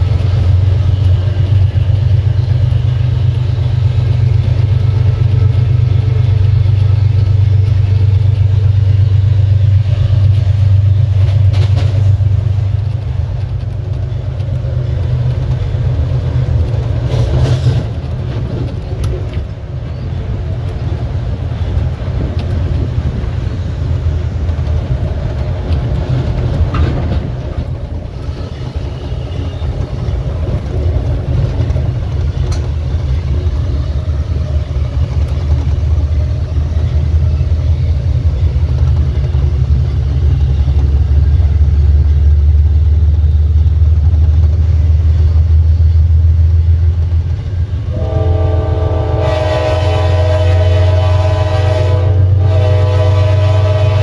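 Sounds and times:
locomotive diesel engine drone: 0.0s - 54.0s
locomotive air horn: 47.9s - 54.0s.

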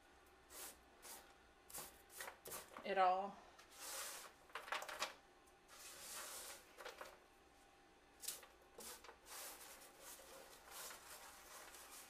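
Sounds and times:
spatula scraping on baking sheet: 5.7s - 6.7s, 8.8s - 12.0s.

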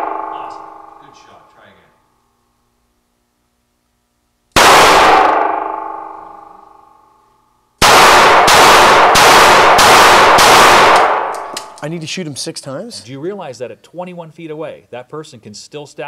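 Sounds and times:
metallic ringing: 0.0s - 1.7s
revolver gunshots: 4.6s - 6.5s, 7.8s - 11.8s.

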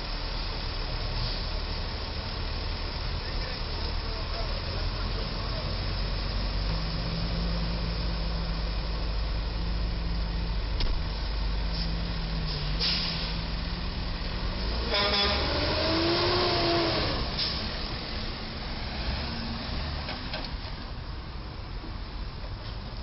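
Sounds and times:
truck engines running: 0.0s - 23.0s
short air hisses: 11.7s - 13.4s, 17.4s - 17.7s
horn with sliding pitch: 14.8s - 17.1s.

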